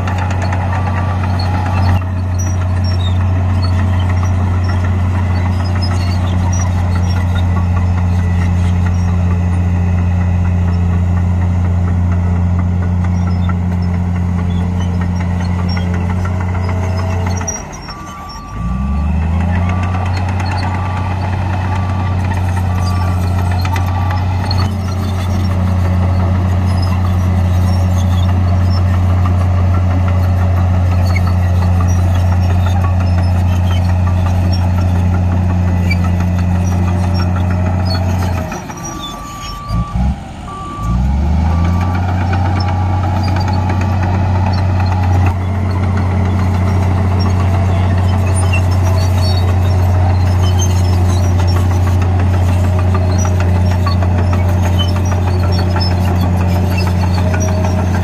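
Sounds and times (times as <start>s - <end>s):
bulldozer diesel engine running: 0.0s - 58.0s
reversing alarm beeping: 14.4s - 27.2s, 36.0s - 52.0s.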